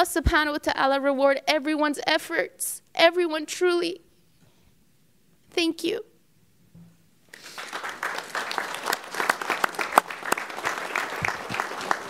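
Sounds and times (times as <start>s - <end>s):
people clapping: 7.3s - 12.0s.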